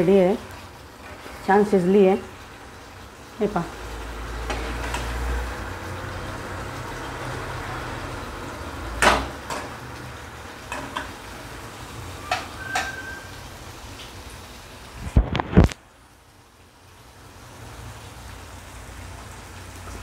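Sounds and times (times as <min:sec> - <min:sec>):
sauce bubbling and sizzling: 0:00.0 - 0:20.0
metal spatula scraping pan: 0:12.2 - 0:13.3.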